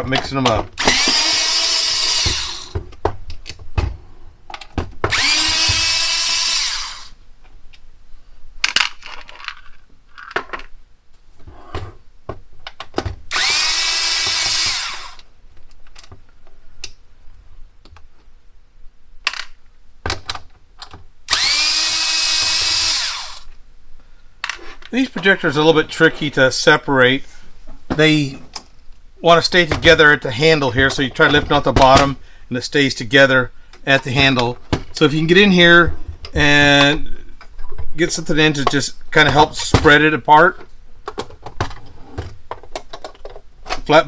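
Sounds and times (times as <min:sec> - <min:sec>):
electric screwdriver whirring: 0:00.8 - 0:02.8, 0:05.1 - 0:07.1, 0:13.3 - 0:15.2, 0:21.3 - 0:23.5.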